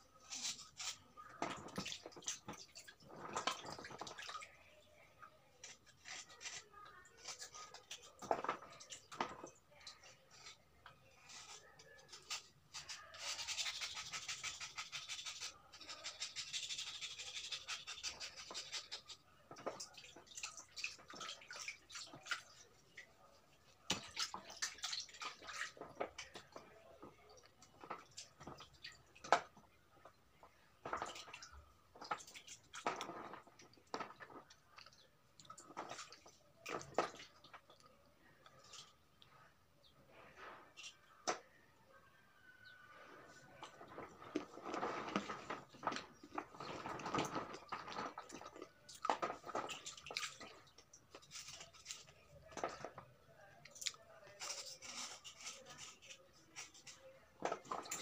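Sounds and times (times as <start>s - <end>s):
water sloshing and dripping: 0.1s - 12.2s, 18.2s - 39.4s, 42.8s - 58.0s
rasping scrubbing on stone: 11.3s - 19.2s.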